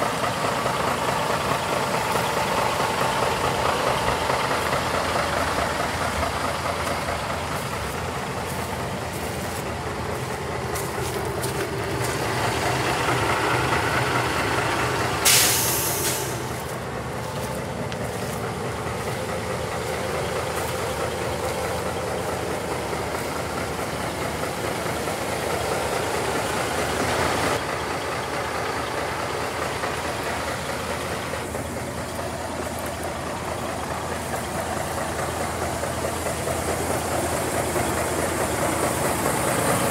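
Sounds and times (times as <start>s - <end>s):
diesel truck engine idling: 0.0s - 39.9s
compressed air hiss: 15.2s - 16.5s.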